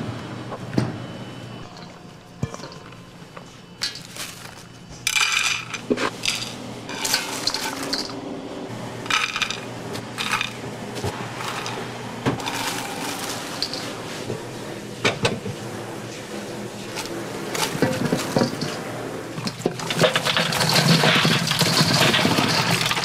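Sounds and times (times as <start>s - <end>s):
steady low hum: 0.0s - 23.0s
dried chilies rustling: 3.4s - 5.2s, 12.4s - 14.3s.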